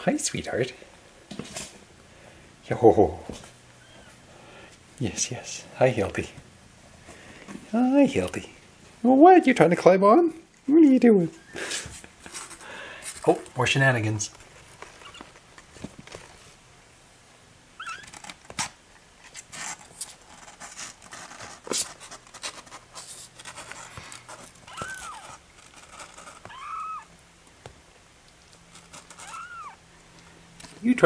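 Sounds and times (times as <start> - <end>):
kittens rustling and clicking: 11.6 - 13.6, 17.8 - 30.8
kittens mewing: 24.6 - 25.5, 26.2 - 27.2, 28.9 - 29.9.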